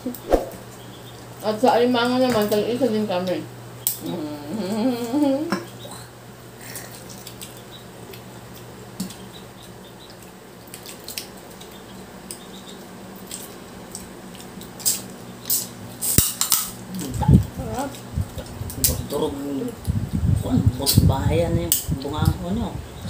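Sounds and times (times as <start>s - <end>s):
steady low hum: 0.0s - 23.0s
wet eating squishes: 6.6s - 15.7s.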